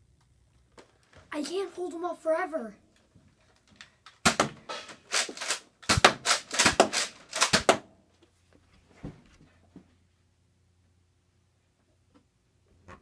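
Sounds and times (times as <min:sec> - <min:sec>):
toy dart blaster firing: 0:04.2 - 0:07.9.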